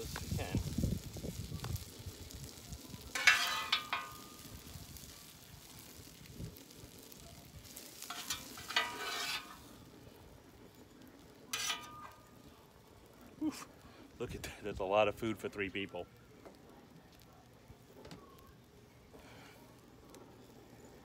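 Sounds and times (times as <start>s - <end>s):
metal spatula scraping griddle: 2.6s - 6.7s, 7.7s - 9.9s, 11.4s - 12.4s.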